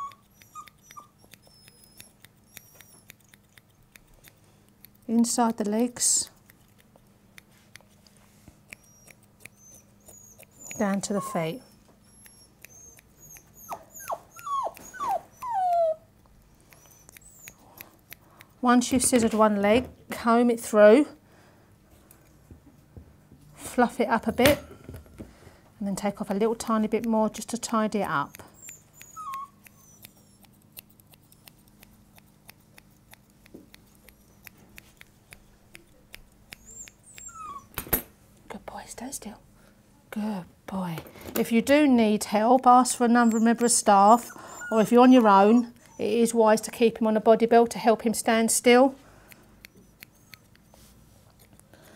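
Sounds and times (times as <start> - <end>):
puppy whining: 0.0 - 5.0, 8.6 - 18.2, 28.0 - 37.8, 42.5 - 46.4, 49.5 - 51.9
scissors snipping hair: 0.0 - 11.6, 12.2 - 19.5, 26.4 - 37.8, 41.5 - 46.9, 47.8 - 51.9.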